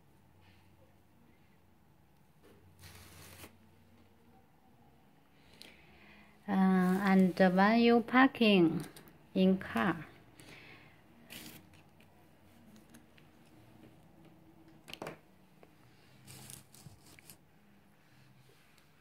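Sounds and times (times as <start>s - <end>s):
cables rustling and clicking: 11.4s - 17.4s.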